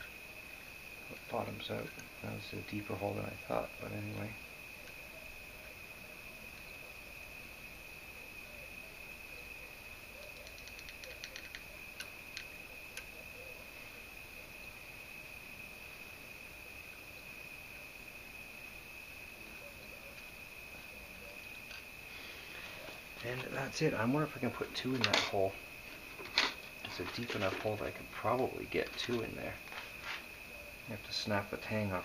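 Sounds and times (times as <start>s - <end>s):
small metallic clicks: 10.3s - 13.1s.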